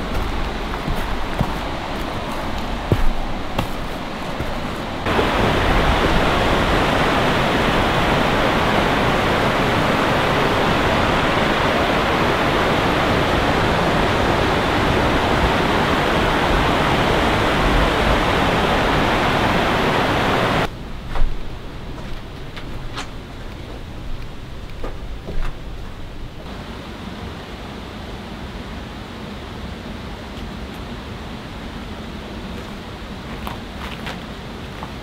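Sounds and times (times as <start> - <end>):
river rapids rushing: 0.0 - 20.7.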